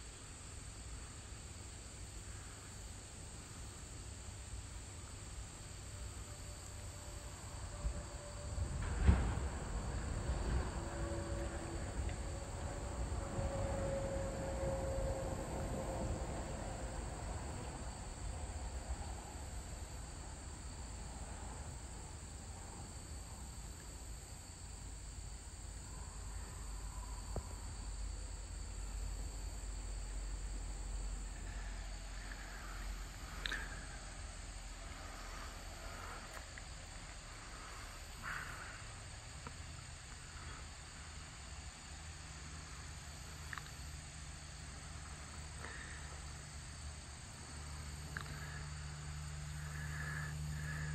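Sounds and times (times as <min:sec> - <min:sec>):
crickets and insects trilling: 0:00.0 - 0:50.9.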